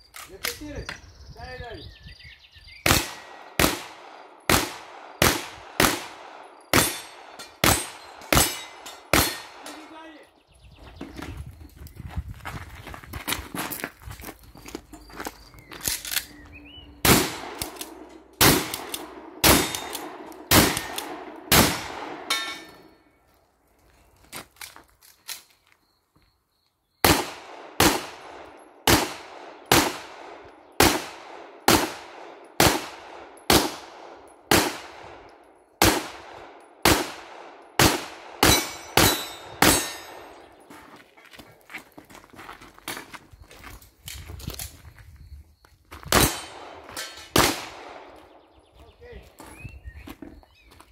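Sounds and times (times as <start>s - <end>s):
handgun firing: 2.9s - 9.8s, 17.0s - 22.8s, 27.0s - 33.9s, 34.5s - 40.4s, 46.1s - 48.1s
shotgun firing: 2.9s - 9.8s, 17.0s - 22.4s, 27.0s - 35.2s, 35.8s - 40.4s, 46.1s - 48.2s
metallic ringing: 22.3s - 23.0s.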